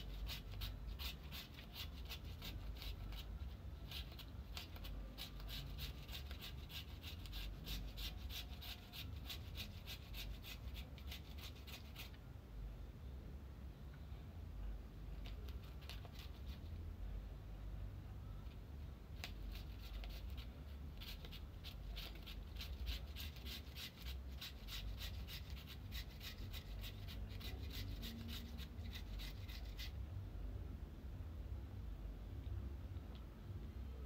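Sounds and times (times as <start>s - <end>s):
carrot rasping on a grater: 0.0s - 3.3s, 3.9s - 12.1s, 19.5s - 29.9s
low steady hum: 0.0s - 34.0s.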